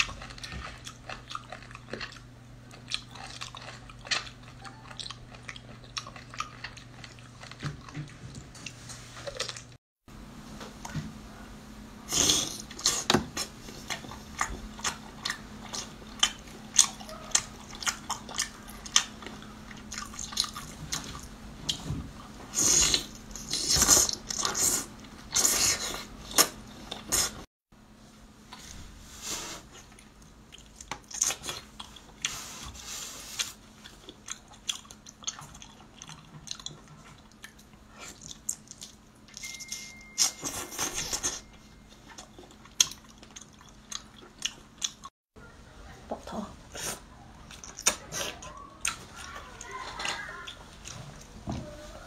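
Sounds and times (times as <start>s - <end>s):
wet chewing and smacking: 0.0s - 9.8s, 12.6s - 27.4s, 29.8s - 32.4s, 33.4s - 45.1s, 46.8s - 51.3s.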